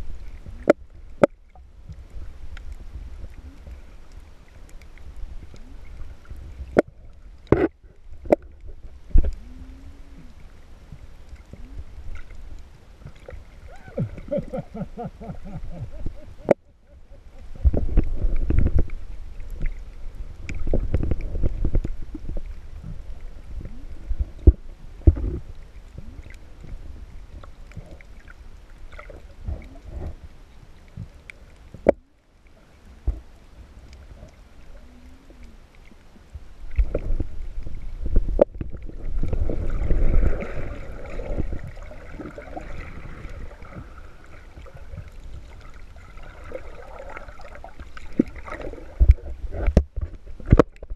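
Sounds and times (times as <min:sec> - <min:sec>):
underwater rumbling and sloshing: 0:00.0 - 0:50.9
sharp knocks and pops: 0:49.0 - 0:50.9.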